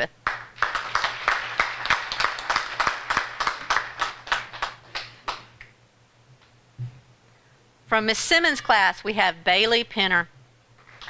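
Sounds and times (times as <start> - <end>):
group applauding: 0.2 - 5.6.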